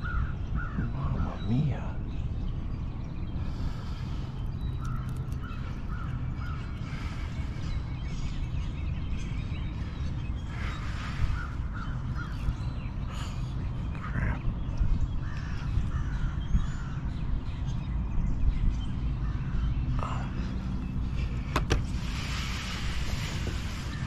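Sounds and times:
steady low drone: 0:00.0 - 0:24.0
short bird calls: 0:09.7 - 0:17.0.

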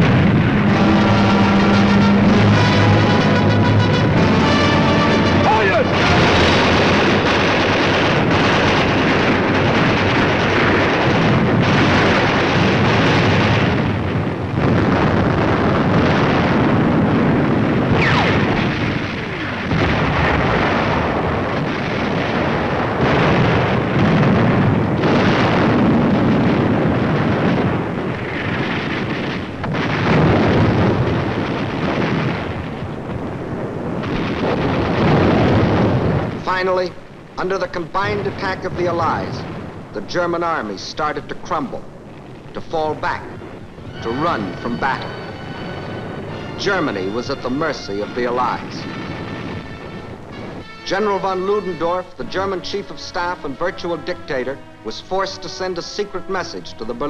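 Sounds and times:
artillery shells exploding: 0:00.0 - 0:57.0
falling shell whistle: 0:00.7 - 0:05.7.

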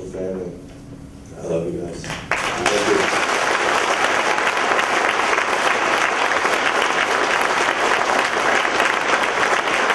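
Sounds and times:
large audience applauding: 0:02.1 - 0:09.9.

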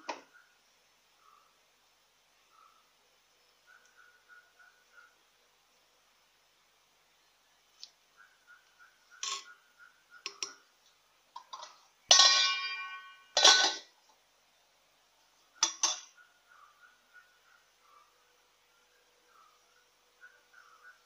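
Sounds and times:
metal lid clanging: 0:09.2 - 0:09.5, 0:11.4 - 0:13.9, 0:15.6 - 0:16.1
metal spoon knocking clay pot: 0:11.4 - 0:13.8, 0:15.6 - 0:16.1.

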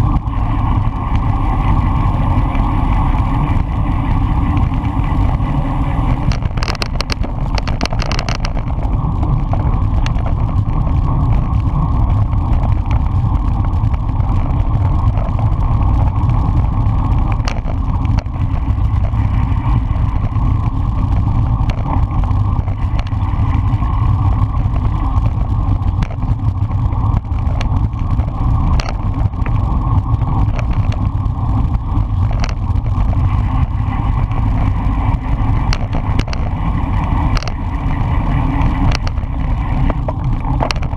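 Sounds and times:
bike tyres humming on asphalt: 0:00.0 - 0:40.9
wind buffeting microphone: 0:00.0 - 0:40.9.

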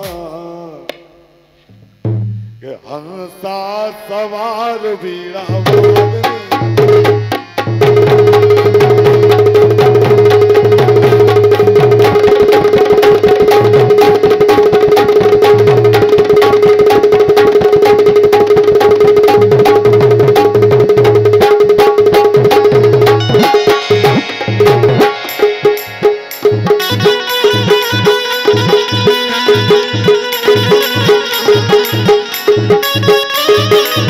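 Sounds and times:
fast tabla drumming: 0:05.4 - 0:34.0
held drone note: 0:22.5 - 0:34.0.

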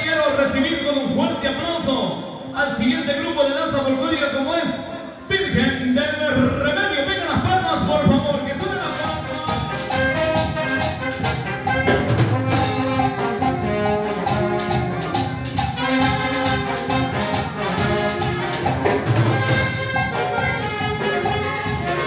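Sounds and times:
brass instruments playing tune: 0:08.4 - 0:22.0
steady percussion beat: 0:08.5 - 0:22.0.

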